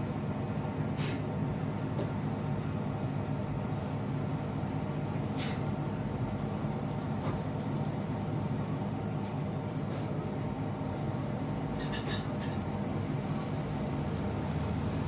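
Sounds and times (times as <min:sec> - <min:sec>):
low mechanical rumble: 0:00.0 - 0:15.0.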